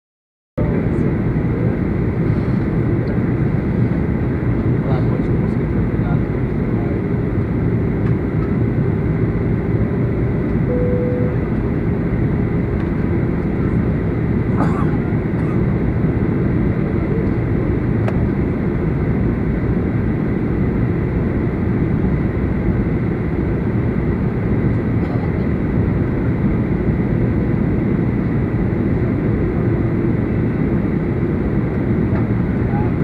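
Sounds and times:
jet engine cabin roar: 0.6s - 33.0s
faint high steady tone: 10.7s - 11.6s.

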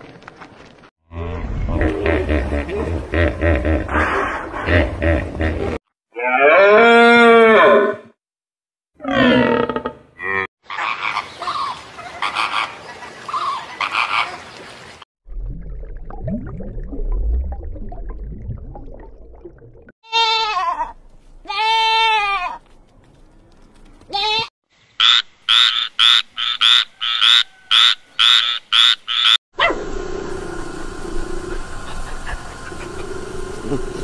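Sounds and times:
low underwater rumble: 15.3s - 19.9s
goat kid bleating: 20.1s - 22.6s, 24.1s - 24.5s.

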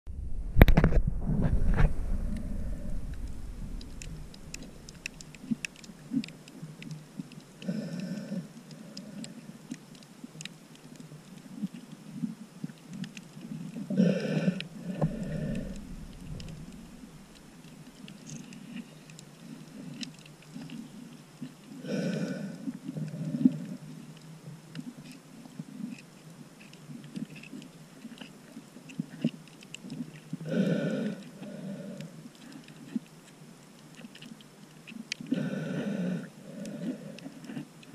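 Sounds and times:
low rumble of water: 0.1s - 37.9s
clicks and crackles: 0.5s - 30.4s, 32.0s - 35.5s, 36.2s - 37.9s
breathing through snorkel: 14.0s - 17.2s, 35.3s - 37.6s.

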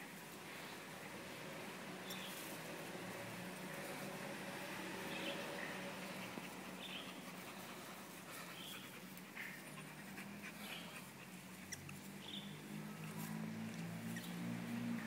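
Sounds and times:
dog panting: 5.5s - 12.0s.

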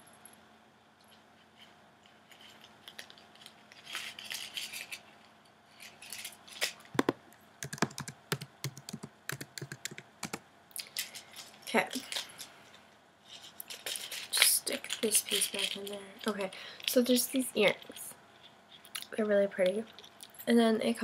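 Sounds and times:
soft rustling of packaging: 1.0s - 6.9s, 10.8s - 20.5s.

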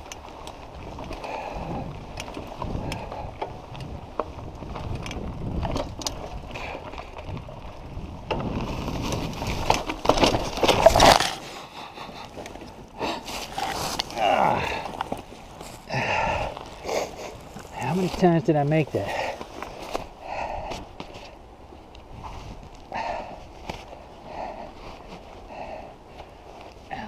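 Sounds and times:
bike chain and frame rattling: 0.0s - 24.7s
bike tyres rumbling on dirt: 0.0s - 27.0s
bike crashing into brush: 8.4s - 11.5s.

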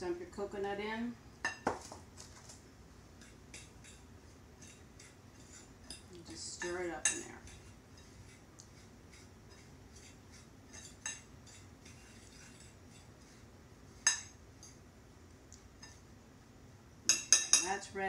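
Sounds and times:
fork scratching dry crumbs: 4.6s - 6.0s, 7.5s - 13.5s.

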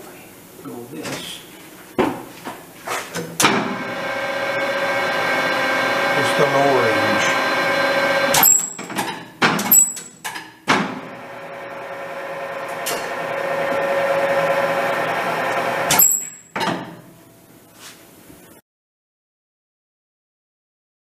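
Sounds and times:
lathe spindle drive whine: 3.5s - 8.8s, 11.0s - 16.0s
lathe control clunks: 12.6s - 13.4s.

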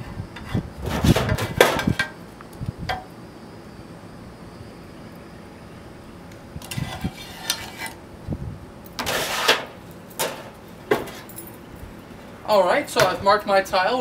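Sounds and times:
marker scraping on concrete tile: 6.6s - 8.0s, 9.0s - 9.6s.

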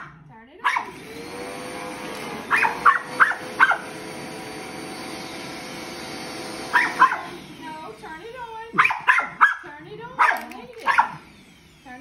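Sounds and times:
dog barking: 0.0s - 0.9s, 2.5s - 3.8s, 6.7s - 7.3s, 8.8s - 11.2s
vacuum cleaner running: 0.6s - 12.0s.

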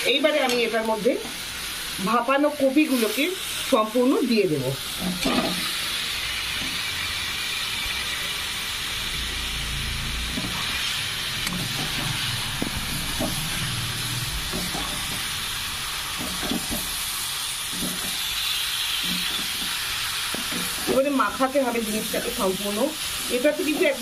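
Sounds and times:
spices sizzling in a metal pan: 0.0s - 24.0s
metal spatula scraping a pan: 5.0s - 5.8s, 10.3s - 15.4s, 16.1s - 17.0s, 17.6s - 21.4s.

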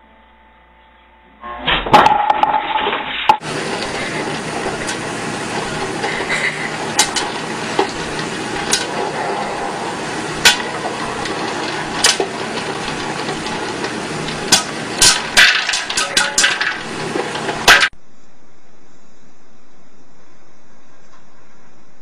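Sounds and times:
popcorn popping: 1.9s - 18.0s.

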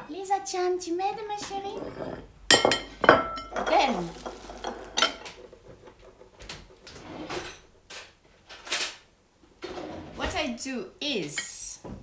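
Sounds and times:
dishes knocking and scraping: 1.4s - 7.7s.

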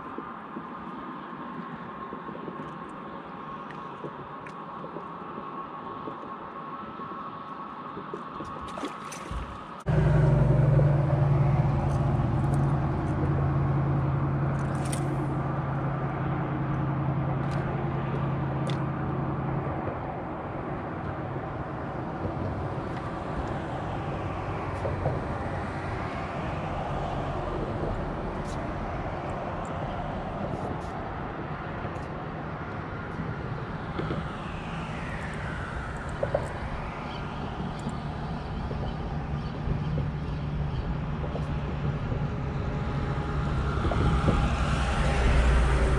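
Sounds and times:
highway road rumble: 0.0s - 45.9s
vehicle whine falling in pitch: 9.9s - 13.9s.

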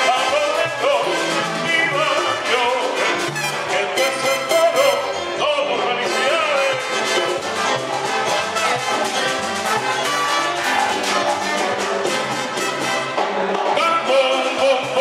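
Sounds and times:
percussion beat: 0.0s - 5.1s, 6.5s - 15.0s
horns playing: 0.0s - 15.0s.

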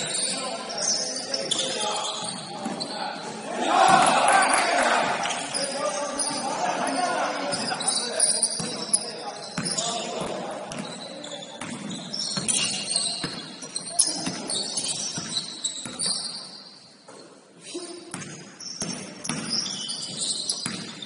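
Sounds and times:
sneaker squeaks: 0.0s - 4.6s, 5.2s - 21.0s
players' voices: 0.0s - 15.1s
basketball bouncing on court: 9.5s - 16.2s, 18.1s - 21.0s.

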